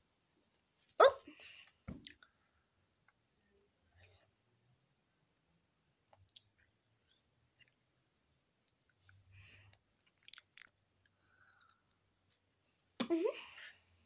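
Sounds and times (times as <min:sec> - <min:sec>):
lip-smacking mouth sounds: 0:09.7 - 0:10.8.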